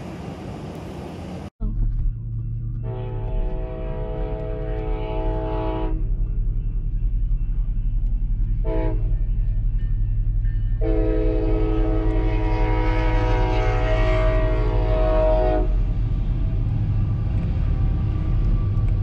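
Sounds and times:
train rumble: 0:00.0 - 0:19.0
locomotive air horn blasts: 0:02.8 - 0:06.0, 0:08.6 - 0:09.2, 0:10.8 - 0:15.9.

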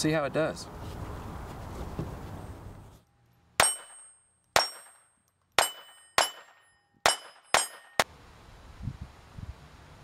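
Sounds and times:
sharp metallic clangs: 0:03.6 - 0:08.1.

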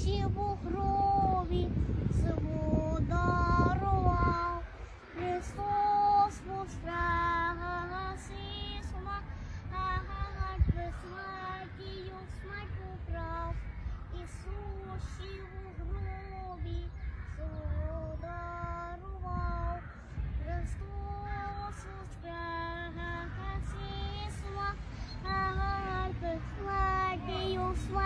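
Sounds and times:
high voice singing slow melody: 0:20.4 - 0:28.0.

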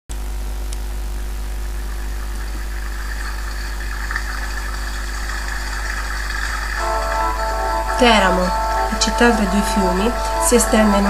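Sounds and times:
low hum: 0:00.1 - 0:11.0.

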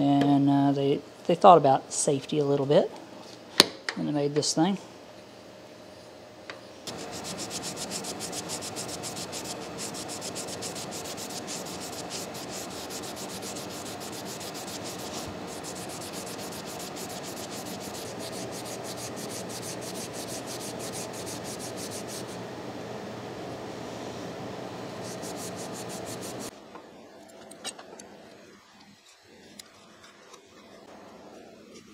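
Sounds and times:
metal part rubbed against cloth: 0:06.9 - 0:22.4, 0:25.0 - 0:26.5.

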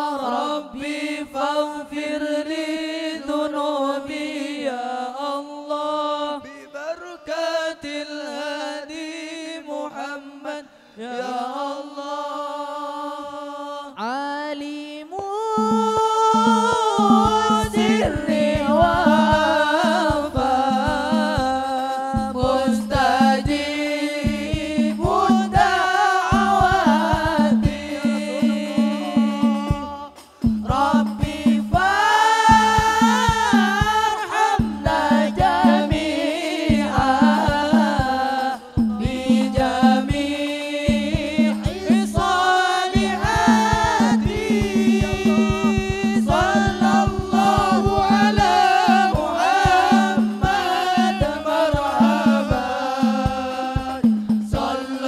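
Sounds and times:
person singing melismatic devotional song: 0:00.0 - 0:55.0
drums in quick steady rhythm: 0:15.6 - 0:55.0.

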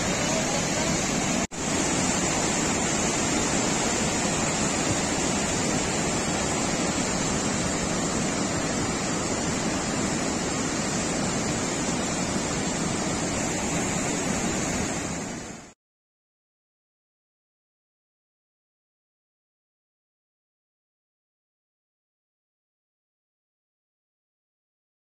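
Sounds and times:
torrent of water rushing: 0:00.0 - 0:15.8.

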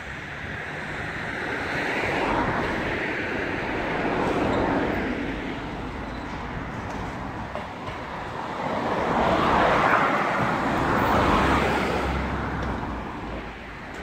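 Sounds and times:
passing vehicle road noise: 0:00.0 - 0:14.0.

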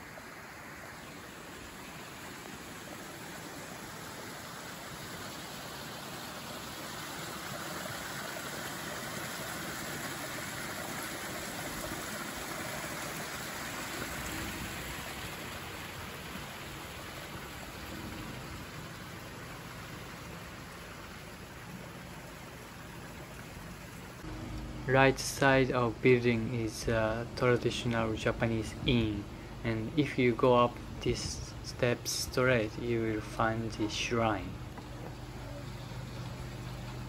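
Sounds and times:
water rushing over rocks: 0:00.0 - 0:24.3.

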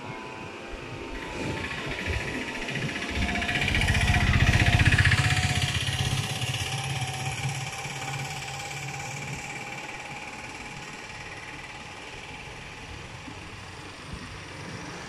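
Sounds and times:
vehicle engine passing by: 0:01.3 - 0:09.8.

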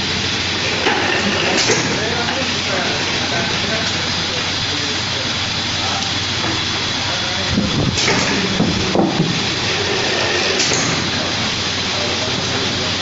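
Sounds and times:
winding machine whirring: 0:00.0 - 0:13.0
machine knocks and clatters: 0:07.7 - 0:11.3.

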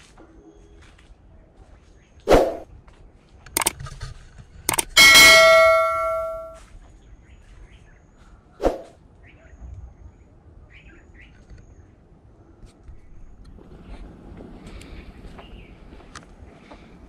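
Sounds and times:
sharp click: 0:03.5 - 0:04.0, 0:04.7 - 0:05.6
bell-like notification chime: 0:05.0 - 0:06.6.

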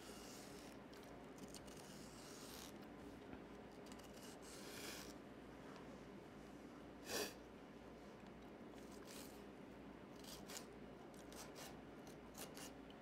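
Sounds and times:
knife slicing pepper: 0:10.2 - 0:12.8.

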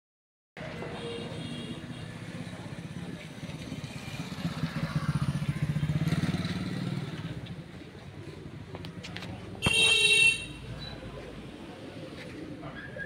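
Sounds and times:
motorcycle engine passing: 0:02.6 - 0:08.5.

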